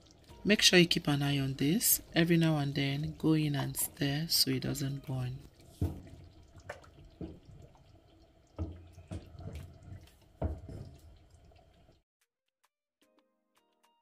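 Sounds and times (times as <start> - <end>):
spoon stirring thick stew: 8.5 - 11.2
spoon knocking against pot: 8.6 - 11.1.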